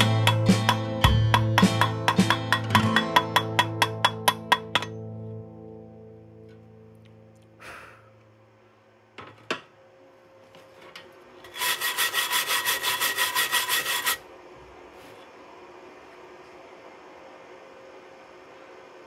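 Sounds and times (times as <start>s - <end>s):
wire brush scraping steel: 11.4s - 14.2s.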